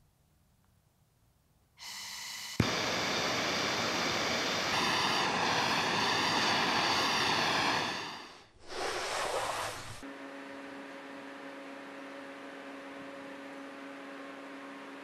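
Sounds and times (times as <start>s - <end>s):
gas torch hissing: 1.8s - 10.0s
torch igniting click: 2.3s - 8.4s.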